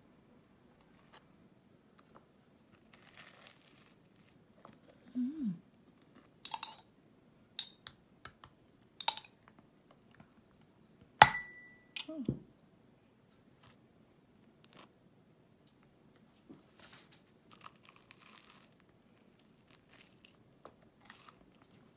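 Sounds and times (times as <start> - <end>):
knife clicking against glass jar: 9.0 - 9.3.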